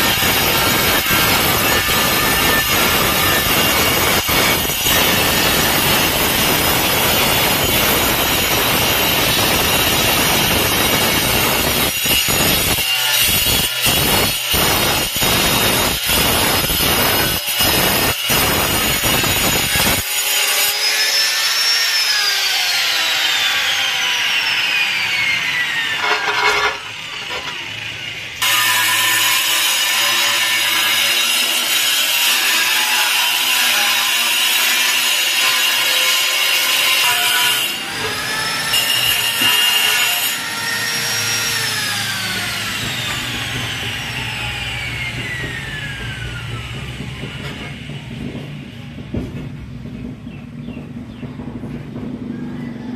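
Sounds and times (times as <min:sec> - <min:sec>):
angle grinder cutting tile: 0:00.0 - 0:48.2
angle grinder coasting down: 0:21.6 - 0:29.2, 0:37.7 - 0:49.6
grinder motor whine: 0:41.1 - 0:48.3.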